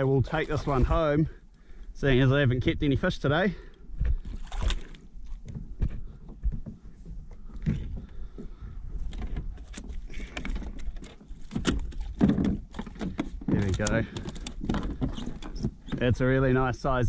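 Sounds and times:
knocks and rattles on plastic kayak: 4.0s - 16.6s.

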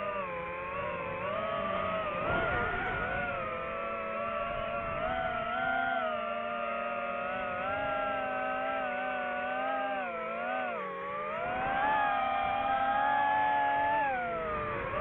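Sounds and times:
drone propellers whining: 0.0s - 15.0s.

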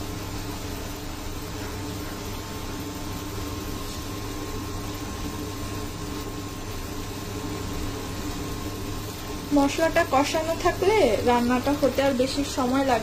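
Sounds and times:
induction cooktop hum: 0.0s - 13.0s.

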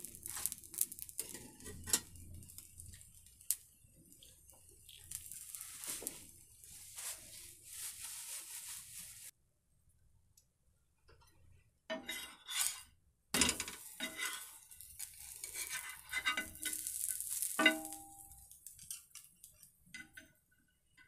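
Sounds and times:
sizzling hiss: 0.0s - 9.3s, 13.5s - 19.7s
metal utensils clattering on a pan: 1.2s - 3.1s, 11.9s - 20.5s.

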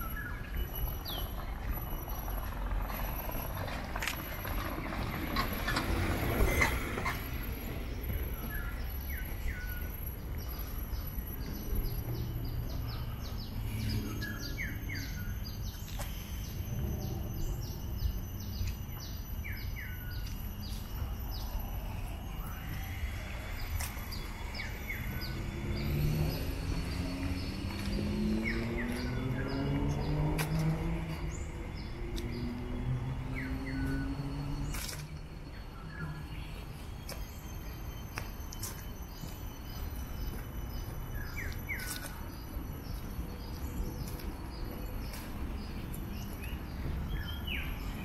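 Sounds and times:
low motor hum: 0.0s - 38.0s
birds chirping: 0.0s - 48.0s
utility cart passing: 0.0s - 48.0s.

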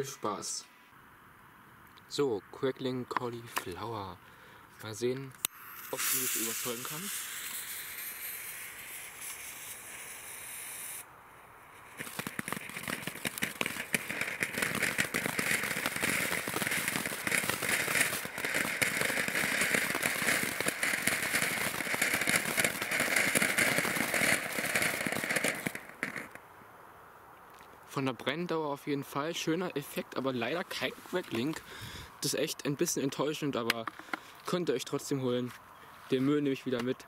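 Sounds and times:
firework fountain crackling: 5.5s - 11.1s, 11.7s - 26.4s
firework fuse hissing: 5.5s - 11.1s, 11.7s - 26.4s.

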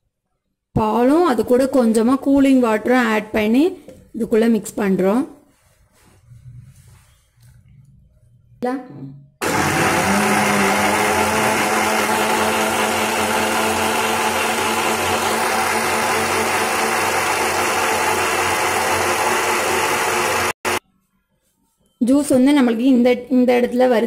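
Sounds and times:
blender motor whining: 9.4s - 20.8s.

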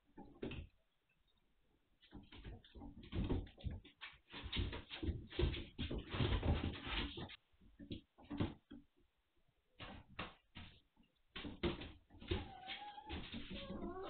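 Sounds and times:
puppies knocking and thumping: 0.0s - 0.7s, 2.0s - 8.9s, 9.8s - 14.0s
puppy whining: 12.3s - 14.0s.

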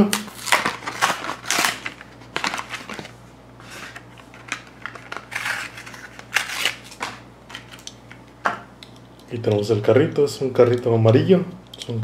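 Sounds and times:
plastic packaging crackling: 0.0s - 3.2s, 3.8s - 8.1s.

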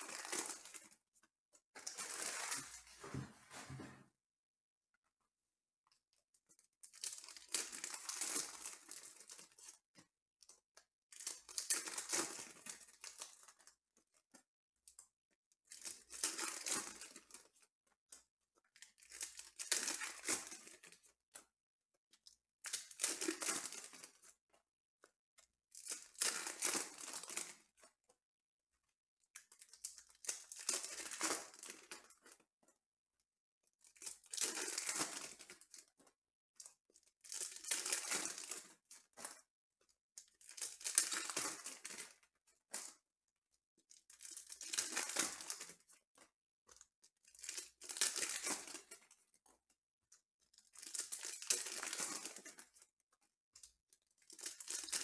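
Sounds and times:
foil wrappers tearing and crinkling: 29.6s - 32.0s, 34.0s - 35.7s, 37.3s - 38.6s, 40.5s - 42.0s, 44.2s - 45.7s, 47.3s - 49.0s, 50.6s - 52.6s, 54.3s - 55.0s.

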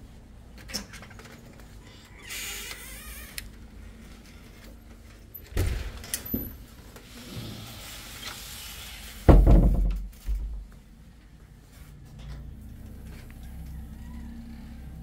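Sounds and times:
knocks: 9.3s - 10.6s.

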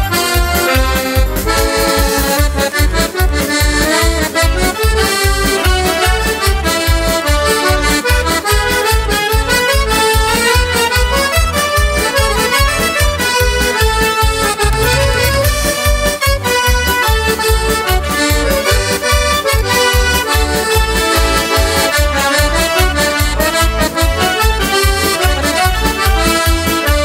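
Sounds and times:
accordion folk music: 0.0s - 27.0s
steady bass beat: 14.3s - 16.4s.

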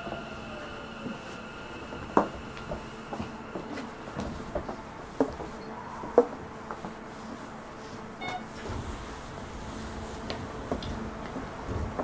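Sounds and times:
train interior low hum: 0.0s - 12.0s
short electronic beep: 8.2s - 8.5s.

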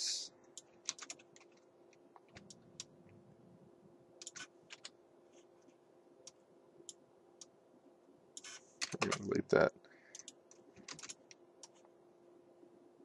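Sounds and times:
faint low hum: 0.0s - 13.0s
keyboard key presses: 0.8s - 1.6s, 10.2s - 11.8s
mouse clicks: 4.2s - 4.9s.

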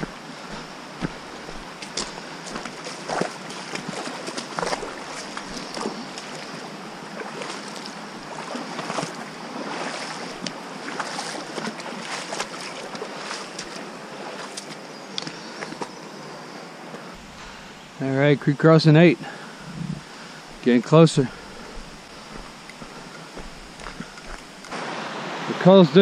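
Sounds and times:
water splashing around legs: 0.0s - 14.9s, 21.2s - 24.8s
stream rushing: 0.0s - 26.0s.

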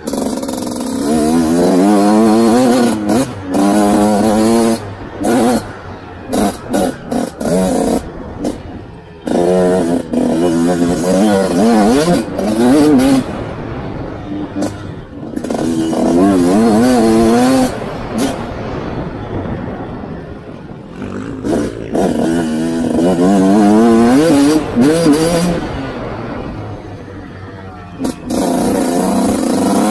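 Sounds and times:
dirt bike engine revving: 0.0s - 29.9s.

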